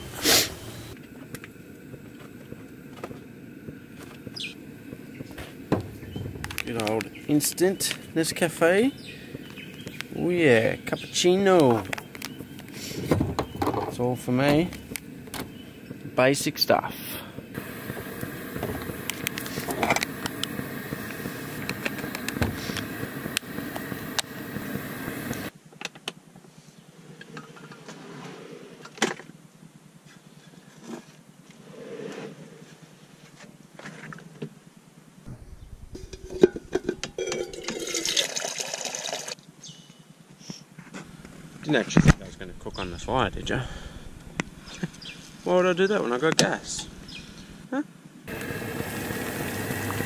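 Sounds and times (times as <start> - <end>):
pots and containers clattering: 36.0 - 39.3
water pouring into a pot: 36.8 - 39.4.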